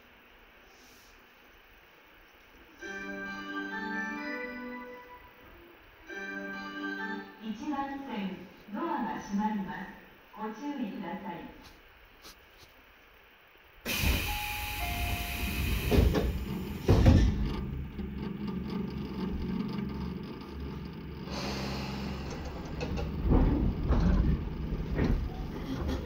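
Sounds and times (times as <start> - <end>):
train car low hum: 0.0 - 26.0
train doors closing thud: 13.9 - 17.9, 21.4 - 26.0.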